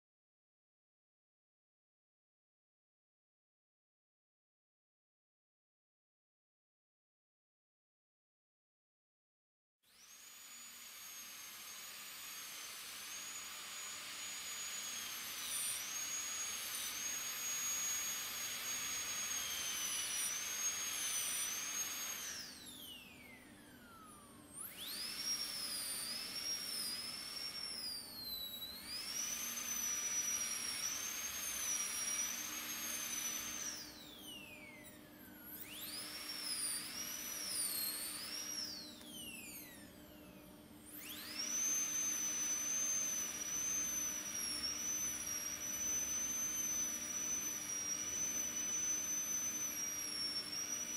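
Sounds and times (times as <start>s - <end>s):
dental drill whining: 9.8s - 50.9s.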